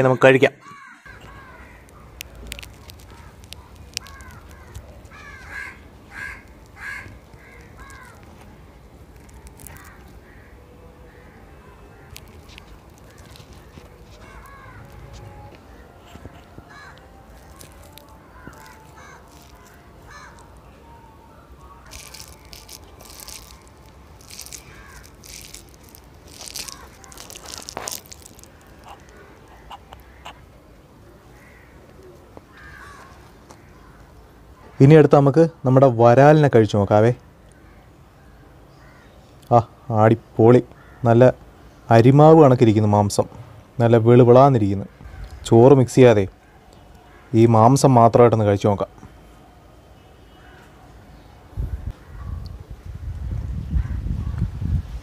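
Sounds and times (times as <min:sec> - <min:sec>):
crows cawing: 0:00.0 - 0:08.4, 0:09.2 - 0:20.6, 0:21.9 - 0:30.5, 0:31.3 - 0:34.9, 0:38.7 - 0:39.2, 0:40.7 - 0:41.2, 0:45.0 - 0:45.5, 0:46.4 - 0:47.5
fingers squishing rice and curry: 0:01.2 - 0:30.5.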